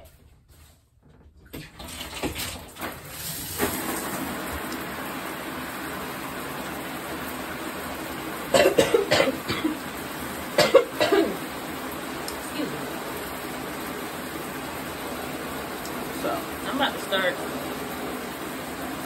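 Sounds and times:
shower water spraying: 1.8 - 19.0
person coughing: 8.5 - 9.8, 10.6 - 11.4.

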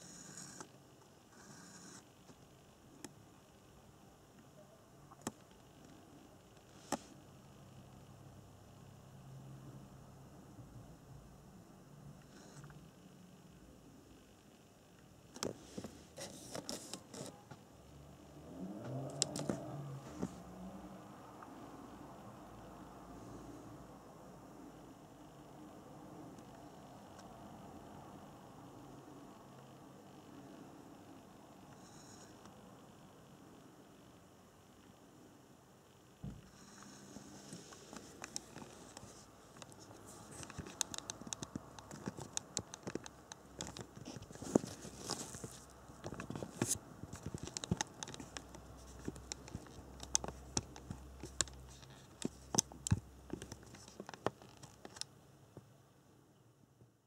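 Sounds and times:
low steady hum: 0.0 - 57.0
light clicks and taps: 37.9 - 55.7.

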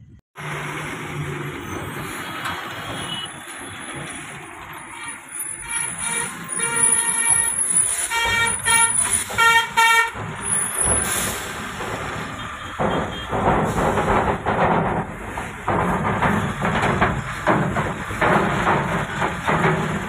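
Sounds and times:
truck cab road noise: 0.0 - 20.0
vehicle horn honking: 4.9 - 10.2, 12.3 - 13.4.

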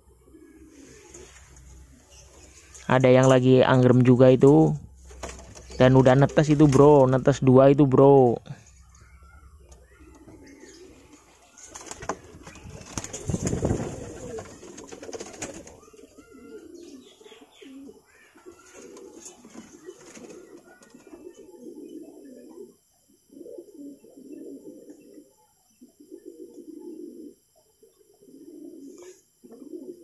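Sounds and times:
pigeons cooing: 0.0 - 30.0
rustling and knocks: 5.0 - 7.1.

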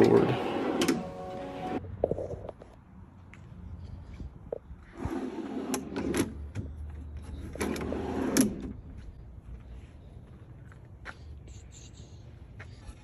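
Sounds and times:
drawer sliding on metal slides: 0.0 - 1.8, 5.0 - 6.4, 7.4 - 8.7.

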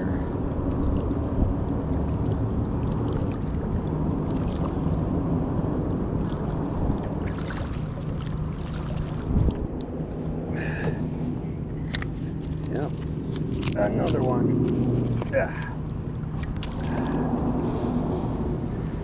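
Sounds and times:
steady low hum: 0.0 - 19.0
water splashing and dripping: 0.6 - 10.2, 15.6 - 17.5.

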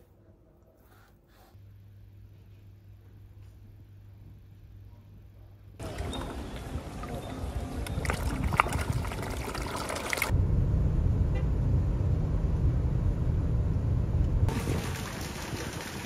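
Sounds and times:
fish splashing at water surface: 7.8 - 10.3.

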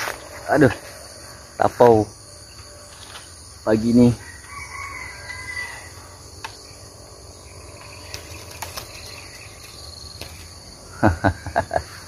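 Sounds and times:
crickets and insects chirping: 0.0 - 12.0.

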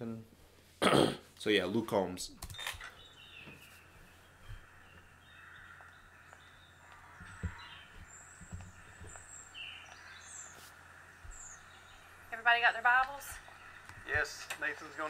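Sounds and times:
faint birds chirping: 0.0 - 15.0
soft low thumps: 7.1 - 9.9.

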